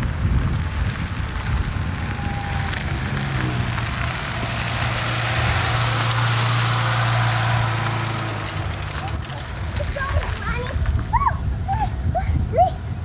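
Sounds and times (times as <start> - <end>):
car engine passing by: 0.0 - 10.6.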